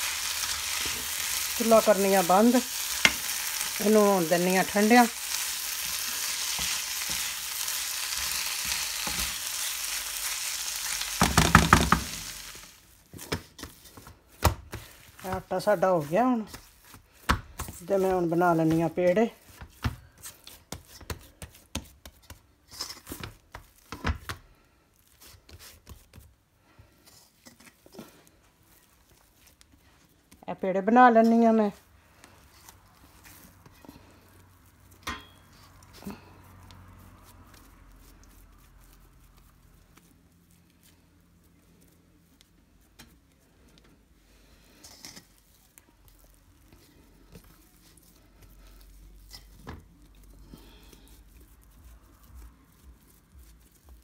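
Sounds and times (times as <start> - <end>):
hands kneading dough in bowl: 0.0 - 54.0.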